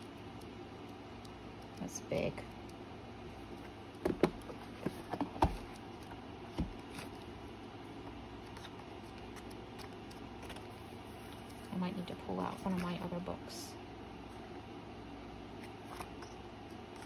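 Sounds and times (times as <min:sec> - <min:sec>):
faint background hum: 0:00.0 - 0:17.0
book pages flipping: 0:03.4 - 0:11.7, 0:15.6 - 0:17.0.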